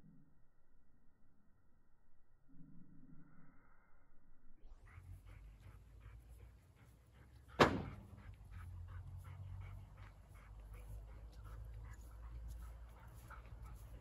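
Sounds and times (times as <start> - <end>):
dog panting: 4.7 - 14.0
sharp knock: 7.6 - 8.0.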